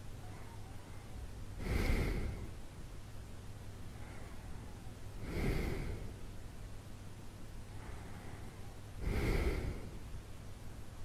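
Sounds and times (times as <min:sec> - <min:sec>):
low hum and hiss: 0:00.0 - 0:11.0
person breathing slowly: 0:01.0 - 0:02.6, 0:03.9 - 0:06.2, 0:07.6 - 0:10.1.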